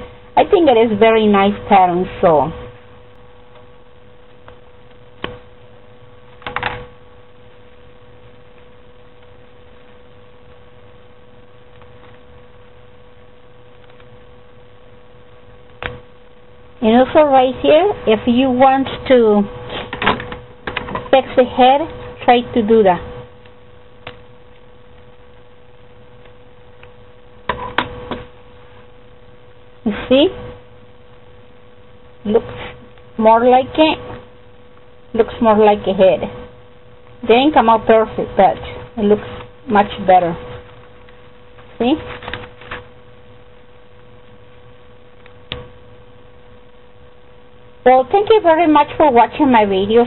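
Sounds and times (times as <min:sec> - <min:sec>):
low background hiss: 0:00.0 - 0:50.0
steady electrical hum: 0:00.0 - 0:50.0
paper handling noise: 0:41.6 - 0:42.9.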